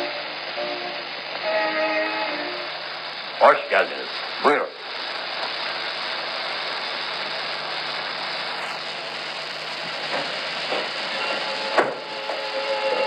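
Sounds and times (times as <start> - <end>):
film soundtrack hiss and crackle: 0.0 - 13.0
music: 0.1 - 2.7.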